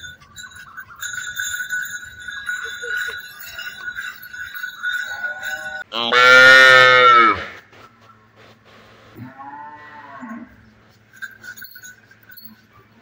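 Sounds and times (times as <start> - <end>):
collar bells jingling: 0.0 - 6.1, 10.7 - 13.0
calf mooing: 5.0 - 7.6, 9.2 - 10.6.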